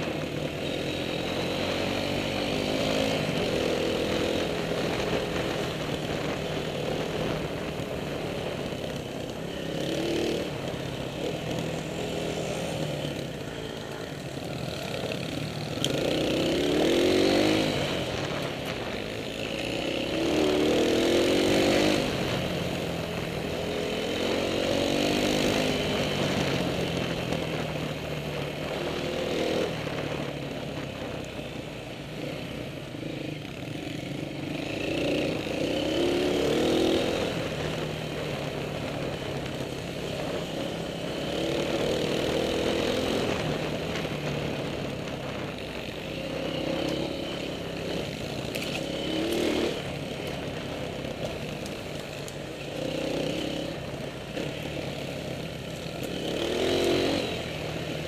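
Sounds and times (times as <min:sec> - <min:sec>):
dirt bike engine revving: 0:15.9 - 0:18.4, 0:56.1 - 0:57.5.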